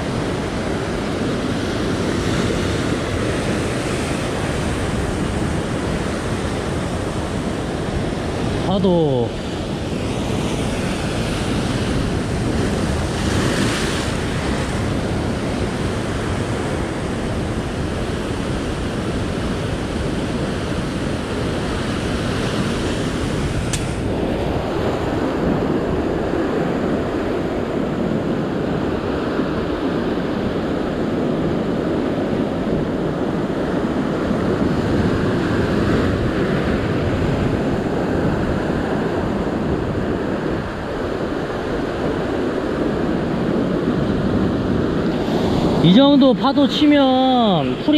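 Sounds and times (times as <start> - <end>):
sea waves breaking on rocks: 10.6 - 27.3
sharp click: 23.7 - 24.0.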